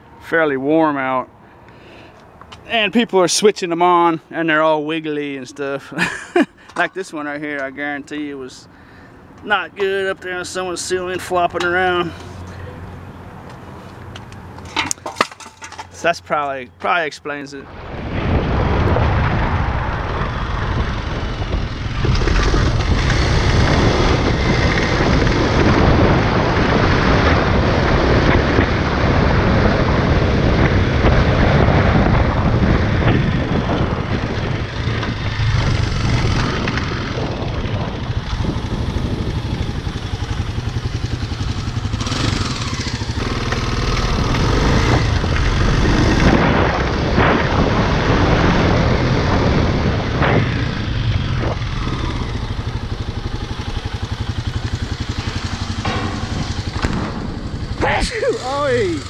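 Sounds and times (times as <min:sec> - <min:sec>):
wind on microphone: 0:17.6 - 0:59.0
dirt bike engine: 0:18.3 - 0:59.0.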